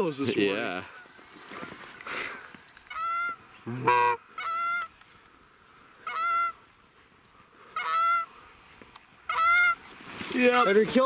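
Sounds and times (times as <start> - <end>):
geese honking: 2.8 - 5.0, 5.9 - 6.7, 7.6 - 8.4, 9.2 - 9.8.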